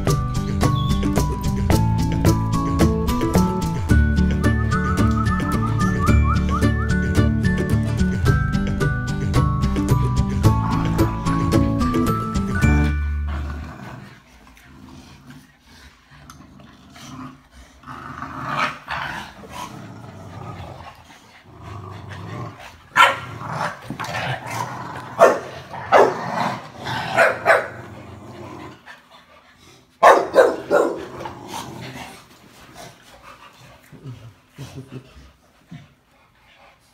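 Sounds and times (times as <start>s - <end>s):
dogs growling in play: 10.3s - 36.9s
dogs barking sharply: 23.0s - 23.3s, 25.2s - 26.2s, 27.1s - 27.8s, 30.0s - 31.1s.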